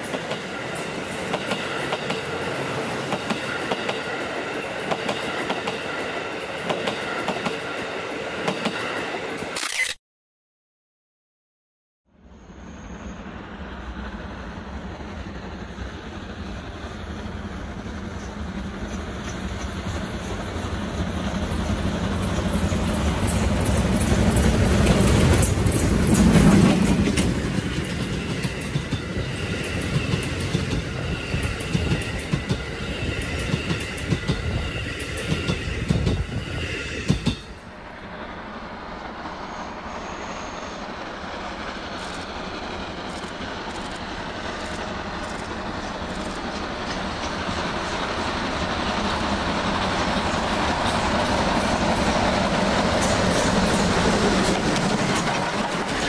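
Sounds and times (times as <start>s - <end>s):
rapid clicking of train wheels: 0.0s - 9.5s, 15.0s - 37.6s, 40.8s - 56.0s
steam locomotive passing: 0.0s - 9.6s, 12.2s - 56.0s
high steady wheel squeal: 12.2s - 15.2s, 29.0s - 46.5s.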